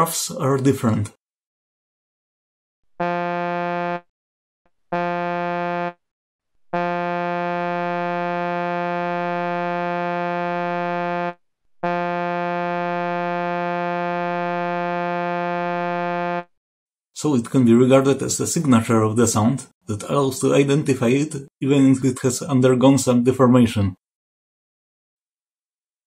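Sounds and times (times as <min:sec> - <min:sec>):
buzzy synthesized tone: 0:03.0 - 0:04.1, 0:04.9 - 0:06.0, 0:06.7 - 0:16.5.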